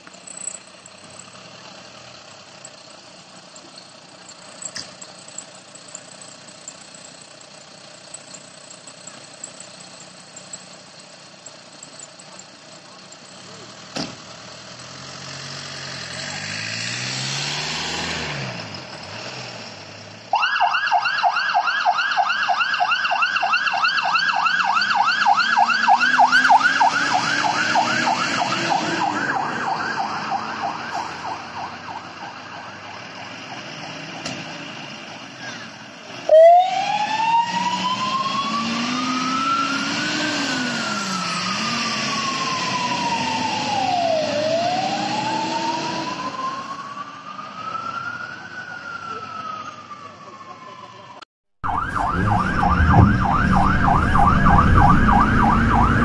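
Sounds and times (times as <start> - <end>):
truck diesel engine revving: 0.0 - 20.3, 24.9 - 31.5, 32.8 - 46.6, 51.6 - 56.0
slow wailing siren: 20.3 - 34.7, 36.1 - 56.0
fast yelping siren: 20.4 - 33.0, 36.3 - 40.0, 40.6 - 56.0
sharp loud burst: 51.7 - 56.0.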